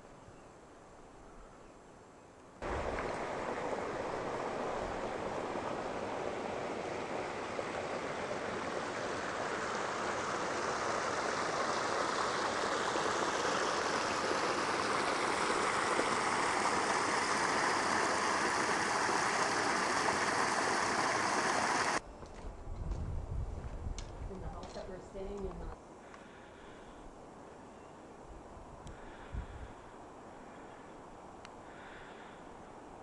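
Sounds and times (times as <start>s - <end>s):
mountain stream rushing: 2.6s - 22.0s.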